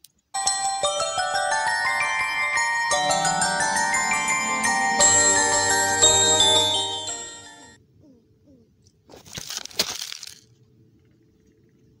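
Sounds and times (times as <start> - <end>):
chiming background music: 0.4 - 7.8.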